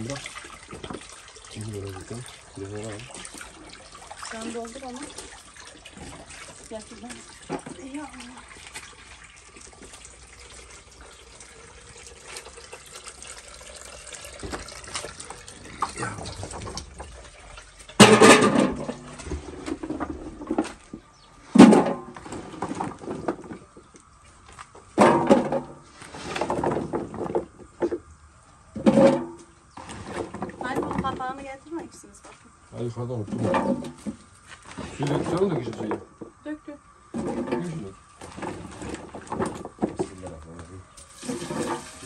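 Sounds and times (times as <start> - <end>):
tap water filling container: 0.0 - 21.0, 37.1 - 42.0.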